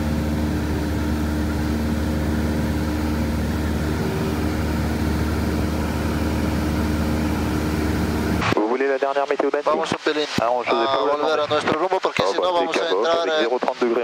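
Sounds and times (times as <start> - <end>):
airplane engine droning in cabin: 0.0 - 8.4.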